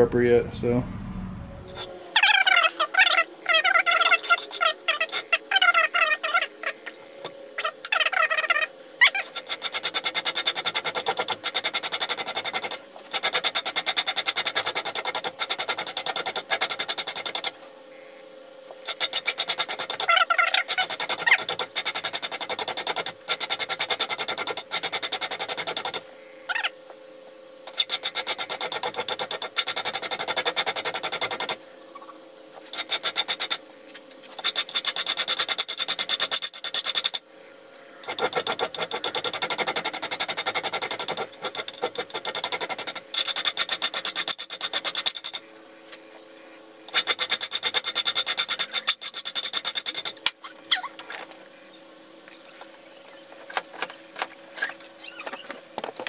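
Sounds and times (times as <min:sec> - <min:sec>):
file rasping on steel blade: 0:04.0 - 0:05.4, 0:09.1 - 0:17.6, 0:18.8 - 0:26.0, 0:27.7 - 0:31.6, 0:32.6 - 0:33.6, 0:34.3 - 0:37.2, 0:38.0 - 0:45.4, 0:46.9 - 0:50.2.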